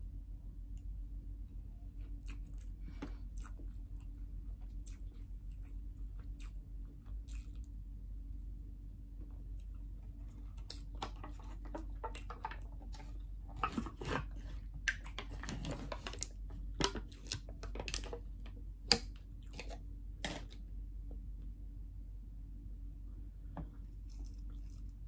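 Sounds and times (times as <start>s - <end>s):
plastic cup crackling and clicking: 14.9s - 20.6s.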